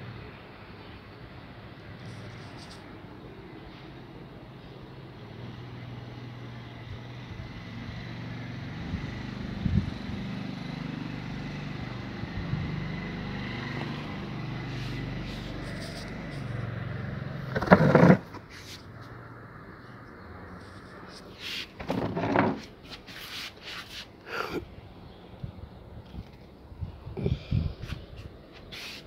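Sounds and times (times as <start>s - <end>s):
vehicle engine humming: 1.6s - 22.8s
loud rough noise: 17.4s - 18.7s.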